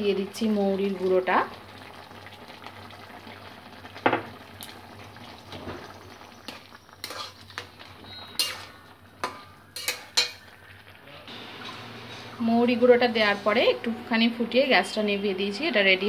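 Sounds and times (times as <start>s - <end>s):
curry bubbling: 0.0s - 14.3s
spatula clinking against metal pan: 8.4s - 10.4s.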